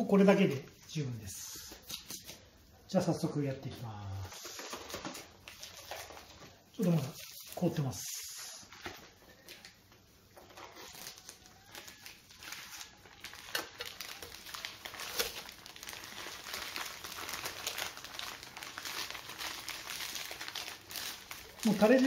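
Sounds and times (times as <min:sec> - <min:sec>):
plastic packet crinkling: 0:03.7 - 0:22.0.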